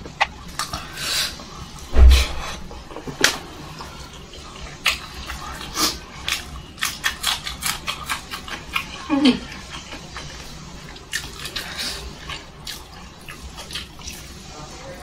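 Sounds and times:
low thump: 1.9s - 2.4s
wet chewing and lip smacks: 4.6s - 9.0s, 9.6s - 14.4s.

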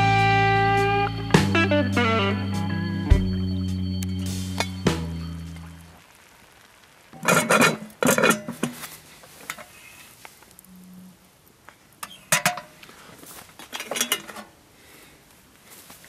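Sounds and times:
metal cookware clattering: 7.2s - 8.8s, 12.0s - 12.8s, 13.7s - 14.5s.

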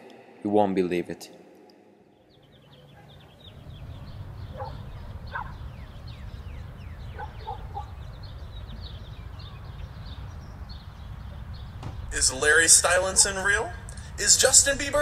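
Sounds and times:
birds chirping: 2.1s - 15.0s
low rumble: 3.2s - 15.0s.

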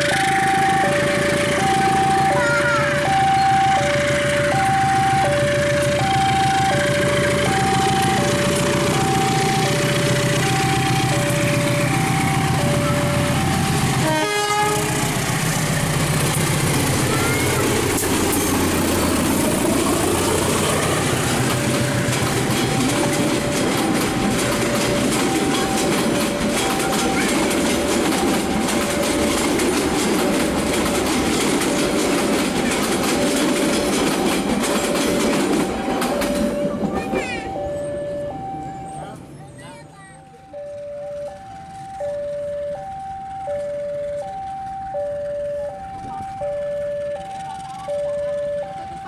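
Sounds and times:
train wheels clattering on rails: 0.0s - 38.0s
diesel locomotive engine: 0.0s - 49.0s
two-tone crossing alarm: 0.0s - 49.0s
train horn toot: 13.9s - 15.3s.

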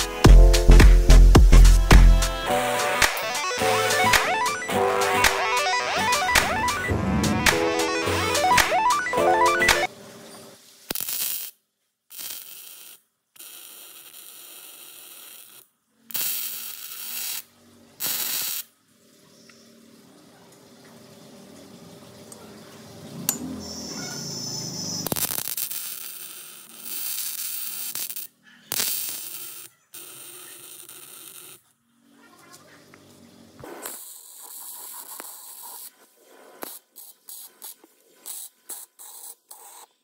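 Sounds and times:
welder arc crackling: 0.0s - 9.9s, 10.8s - 18.7s, 24.8s - 31.7s, 33.6s - 39.9s.

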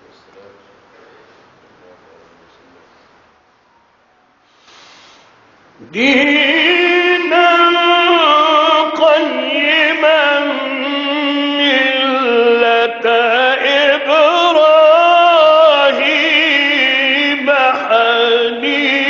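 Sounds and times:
man reciting melodically: 5.8s - 19.0s.

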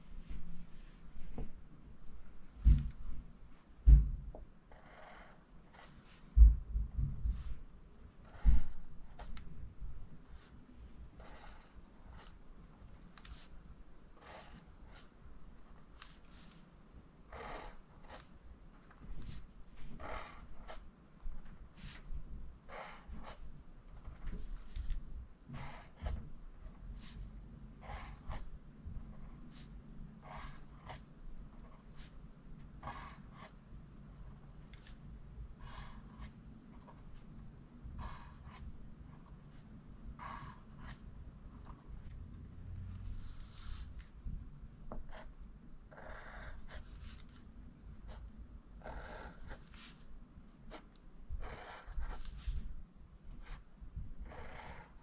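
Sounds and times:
pencil scratching on paper: 4.7s - 6.2s, 8.2s - 9.4s, 11.2s - 13.6s, 14.2s - 16.6s, 17.3s - 18.3s, 18.9s - 20.9s, 22.7s - 25.0s, 25.6s - 32.2s, 32.8s - 35.0s, 35.6s - 37.3s, 38.0s - 39.6s, 40.2s - 42.2s, 45.9s - 47.4s, 48.8s - 50.1s, 50.7s - 52.7s, 53.4s - 53.6s, 54.2s - 55.0s.

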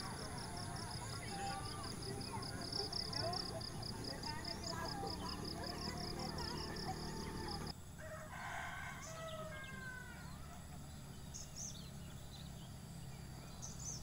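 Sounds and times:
small birds chirping: 0.0s - 7.7s, 9.0s - 14.0s
rooster crowing: 6.9s - 10.7s.

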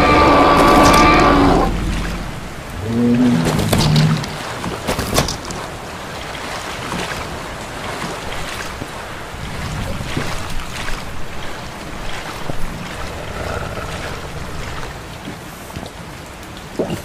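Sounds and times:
sharp splashes or knocks: 0.0s - 13.2s
heavy rain: 0.0s - 16.8s.

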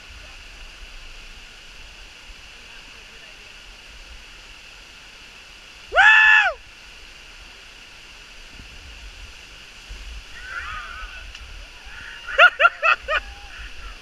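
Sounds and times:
waterfall splashing into pool: 0.0s - 14.0s
loud rising and falling call: 10.3s - 14.0s.

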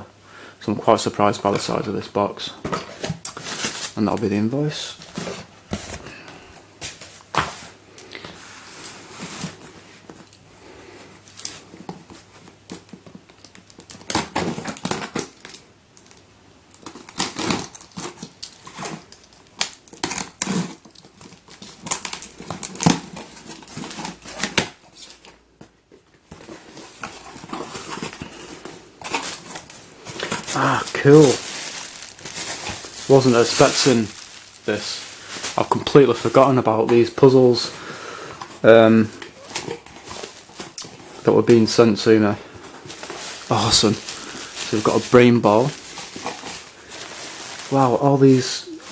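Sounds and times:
packing paper crinkling: 11.3s - 25.4s, 26.3s - 48.9s
tape tearing: 11.4s - 25.4s, 26.3s - 37.5s, 39.1s - 42.0s, 42.8s - 48.9s.

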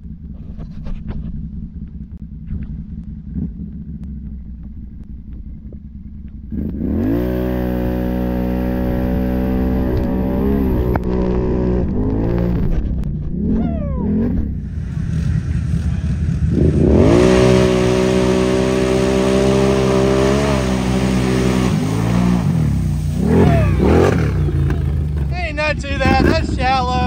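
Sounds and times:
atv engine revving: 0.0s - 27.0s
mud and water spraying: 7.1s - 12.5s, 14.6s - 27.0s.

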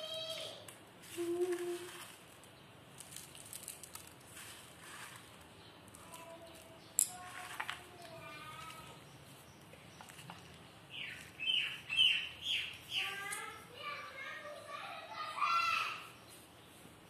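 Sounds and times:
person humming: 1.2s - 2.0s.

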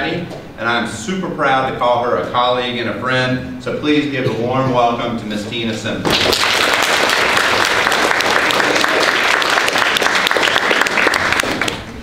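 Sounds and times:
audience applauding: 6.1s - 11.9s.

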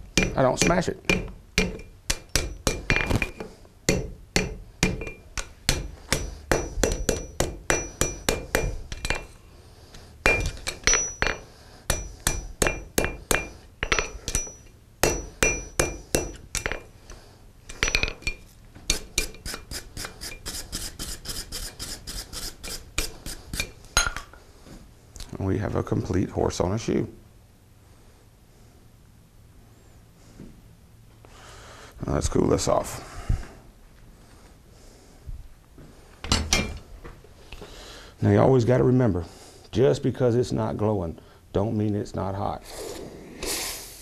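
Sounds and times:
hammer striking horseshoe on anvil: 0.1s - 9.4s, 10.2s - 16.9s, 17.7s - 20.5s
anvil ringing: 0.2s - 9.3s, 10.2s - 16.8s.

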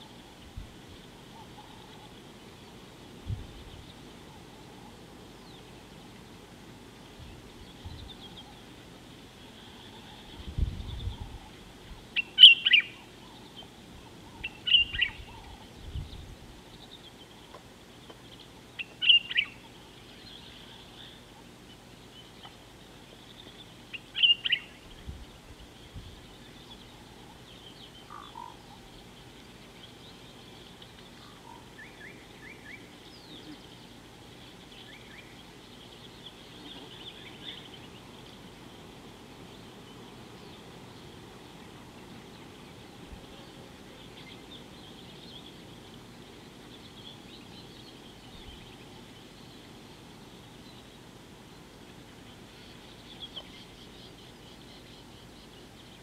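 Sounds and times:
bird chirps: 12.2s - 21.2s, 23.1s - 24.8s.

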